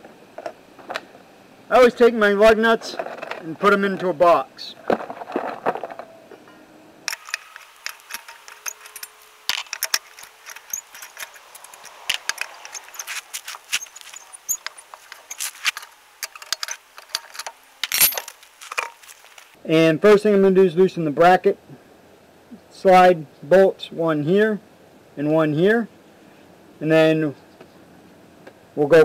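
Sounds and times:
lug wrench clicking on nuts: 0:07.1 - 0:19.0.

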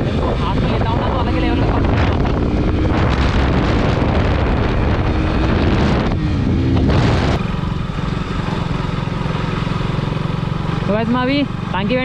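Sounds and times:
wind rush on microphone: 0:00.0 - 0:09.2
motorcycle engine running: 0:00.0 - 0:12.0.

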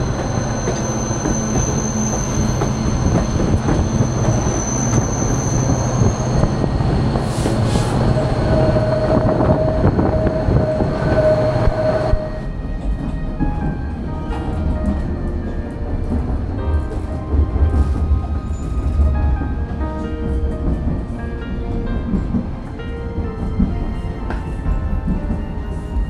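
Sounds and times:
train wheel squeal: 0:00.0 - 0:14.5, 0:17.8 - 0:19.4
train running on rails: 0:00.0 - 0:26.0.

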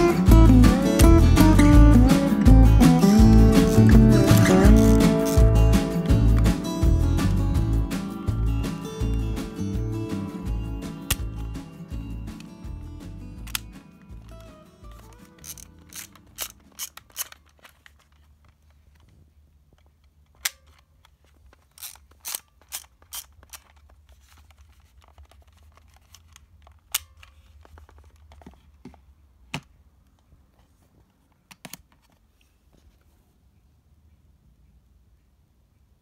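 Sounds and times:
plastic camera clicks and snaps: 0:03.6 - 0:05.5, 0:11.1 - 0:11.3, 0:13.4 - 0:19.1, 0:20.3 - 0:28.3, 0:31.5 - 0:32.2.

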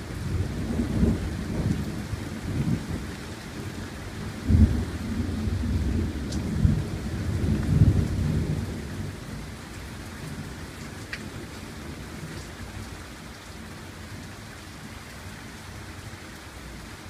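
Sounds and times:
heavy rain: 0:00.0 - 0:17.0
rolling thunder: 0:04.2 - 0:09.2.

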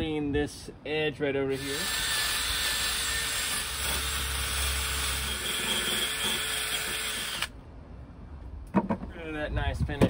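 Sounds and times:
drill wire brush scouring metal: 0:01.5 - 0:07.5.

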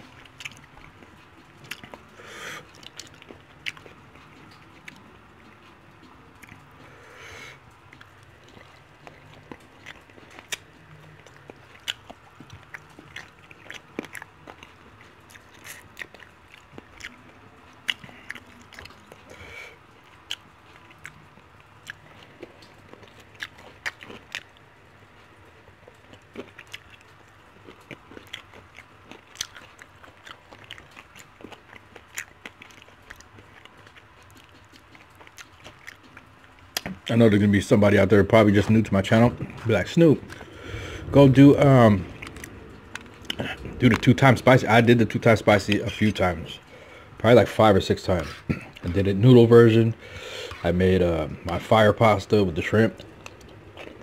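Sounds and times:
person chewing: 0:00.0 - 0:37.1, 0:37.7 - 0:49.1, 0:49.7 - 0:51.8, 0:52.5 - 0:54.0
mouth clicks and smacks: 0:25.9 - 0:37.1, 0:38.4 - 0:46.3.

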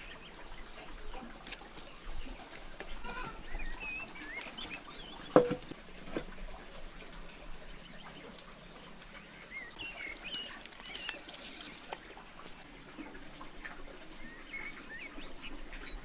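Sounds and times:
birds chirping: 0:01.8 - 0:11.9, 0:14.0 - 0:16.0
metal pot clanking on concrete: 0:05.3 - 0:06.2
firewood clicks: 0:09.8 - 0:12.6.

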